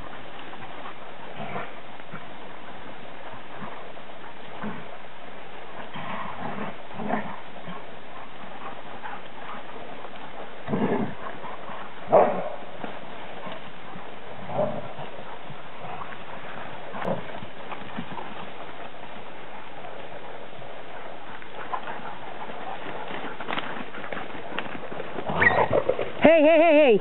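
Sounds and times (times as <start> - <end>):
dogs barking: 6.6 - 17.4.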